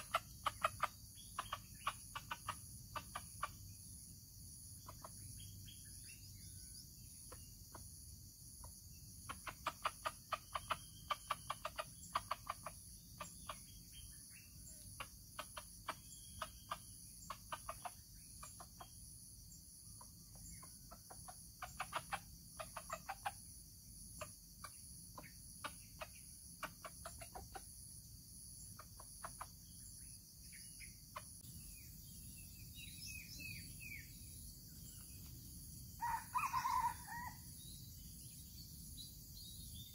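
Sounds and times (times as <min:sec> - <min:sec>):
rooster clucking: 0:00.0 - 0:03.6, 0:09.2 - 0:13.7, 0:14.7 - 0:18.8, 0:20.3 - 0:23.5, 0:24.1 - 0:27.8, 0:28.8 - 0:29.6
high-pitched insect drone: 0:00.0 - 0:39.9.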